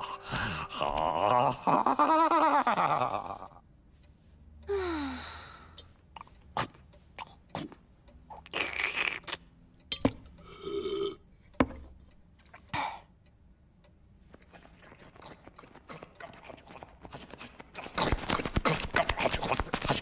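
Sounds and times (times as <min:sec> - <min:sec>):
breathy blowing with hollow hoot: 0:00.0 - 0:02.0
cartoon falling vocal groan: 0:00.0 - 0:03.6
sharp taps and clicks: 0:15.2 - 0:20.0.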